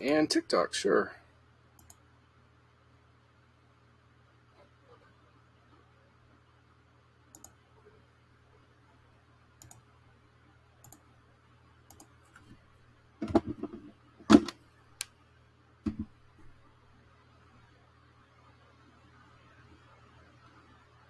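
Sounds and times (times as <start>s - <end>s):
computer mouse clicks: 1.8s - 2.0s, 7.3s - 7.6s, 9.6s - 9.9s, 10.8s - 11.1s, 11.9s - 12.6s
knocks and thumps on desk: 13.2s - 14.5s, 15.9s - 16.2s.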